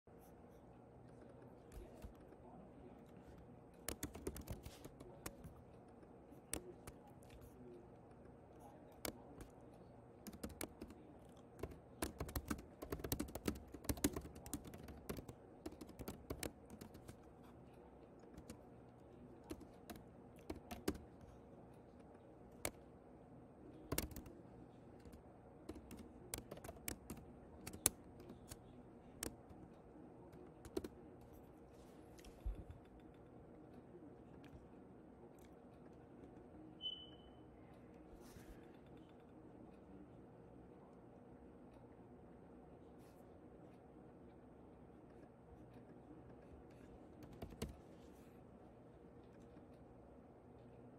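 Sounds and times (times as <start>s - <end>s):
typing on computer keyboard: 3.8s - 5.5s, 10.2s - 17.3s, 18.3s - 18.6s, 19.4s - 21.1s, 23.9s - 24.3s, 25.0s - 28.6s, 30.3s - 31.0s, 47.1s - 47.8s.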